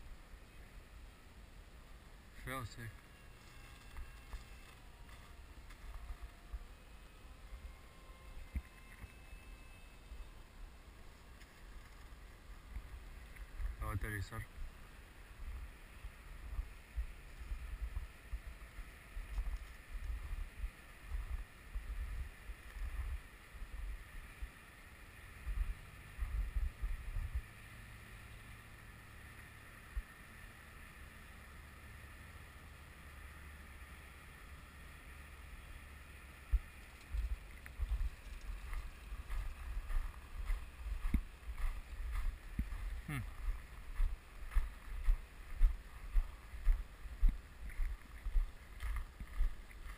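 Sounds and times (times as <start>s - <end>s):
distant model jet motor whine: 0.0s - 49.9s
small ticks and knocks: 36.5s - 39.6s.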